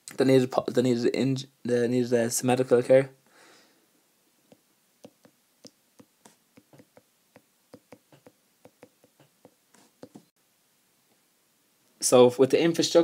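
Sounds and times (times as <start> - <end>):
stylus tapping on touchscreen: 4.5 - 10.3.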